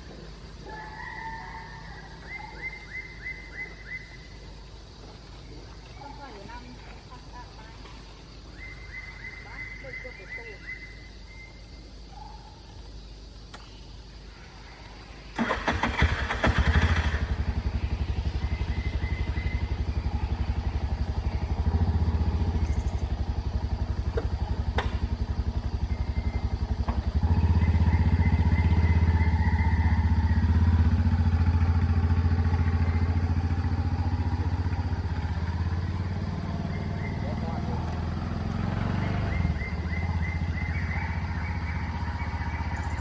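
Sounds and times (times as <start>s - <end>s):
small engine idling: 14.9s - 43.0s.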